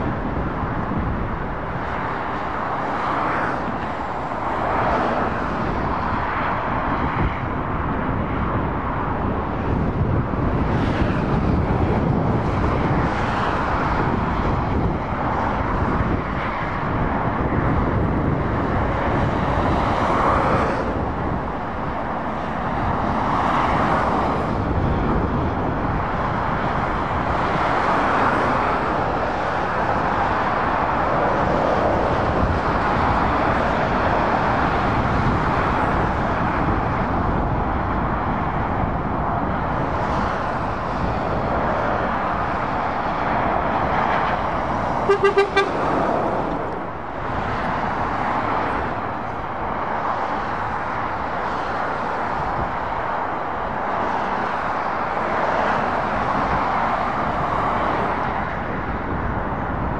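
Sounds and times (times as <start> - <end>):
road traffic rumble: 0.0 - 59.9
vehicle horn toots: 45.0 - 45.8.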